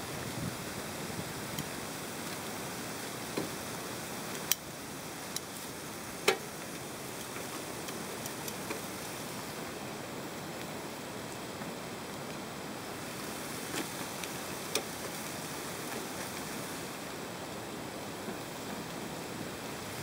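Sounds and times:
meat sizzling on a grill: 0.2 - 9.8, 12.8 - 17.1.

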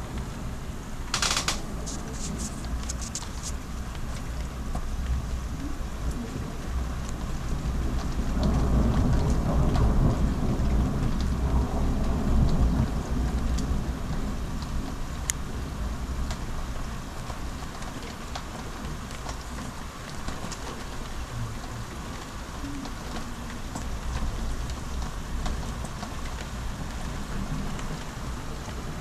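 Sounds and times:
rain falling: 0.0 - 29.0
raindrops ticking on surface: 0.0 - 29.0
thunder rolling: 6.2 - 14.8.

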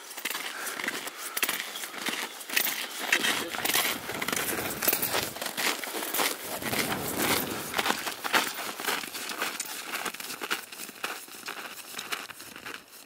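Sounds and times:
clothing rustle: 3.3 - 8.7.

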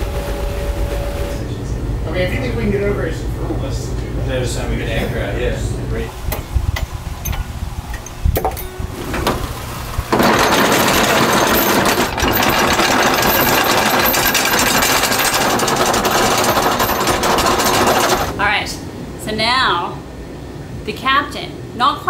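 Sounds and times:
anchor chain knocks: 10.1 - 18.3
anchor chain rattling: 10.1 - 18.4.

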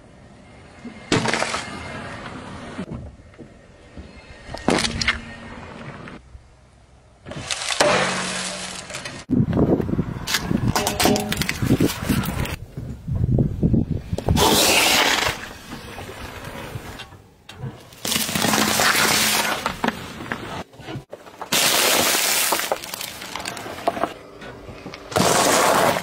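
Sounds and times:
car tyre crushing objects: 10.2 - 12.6, 14.2 - 26.0.

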